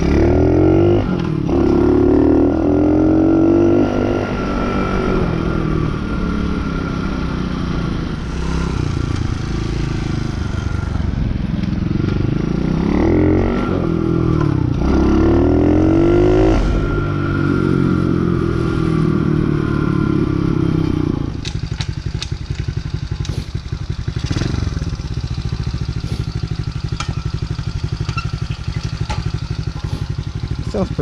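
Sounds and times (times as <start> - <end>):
dirt bike engine revving: 12.5 - 20.6, 22.6 - 31.0
motorcycle engine idling: 21.3 - 31.0.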